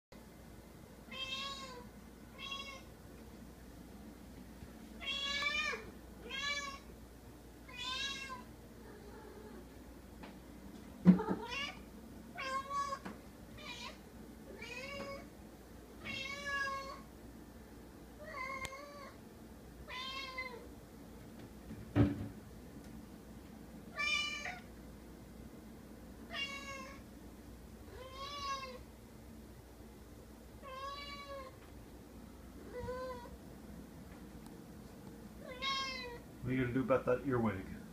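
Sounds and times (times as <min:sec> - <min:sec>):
cat meowing: 0:01.1 - 0:02.9, 0:05.0 - 0:06.9, 0:07.7 - 0:09.6, 0:11.1 - 0:11.8, 0:12.4 - 0:15.3, 0:16.0 - 0:17.0, 0:18.2 - 0:19.2, 0:19.9 - 0:20.7, 0:23.9 - 0:24.7, 0:26.3 - 0:27.0, 0:27.9 - 0:28.8, 0:30.6 - 0:31.6, 0:32.6 - 0:33.3, 0:35.4 - 0:36.2.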